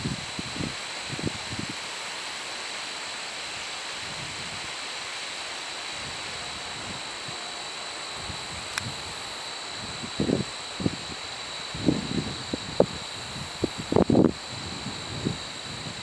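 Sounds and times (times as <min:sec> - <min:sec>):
high-pitched whine: 0:00.0 - 0:16.0
wind hissing through trees: 0:00.0 - 0:16.0
low wind buffets: 0:08.1 - 0:16.0.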